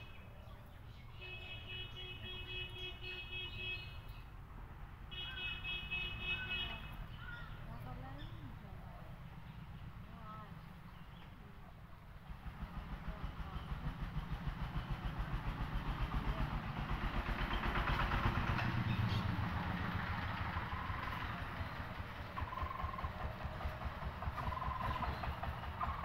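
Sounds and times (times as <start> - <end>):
motor engine chugging: 7.2 - 26.0.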